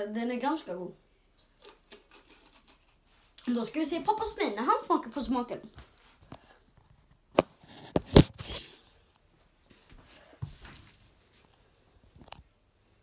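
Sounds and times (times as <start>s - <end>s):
faint scuffing: 5.7s - 12.2s.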